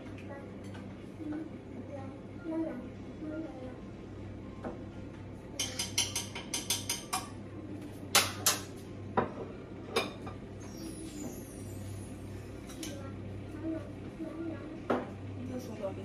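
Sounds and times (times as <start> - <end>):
dishes and cutlery clinking: 5.5 - 7.4, 8.1 - 11.9.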